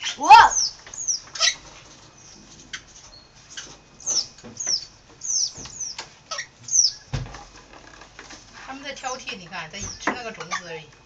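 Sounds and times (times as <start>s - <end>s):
parrots squeaky calls: 0.0s - 1.6s, 3.6s - 7.1s.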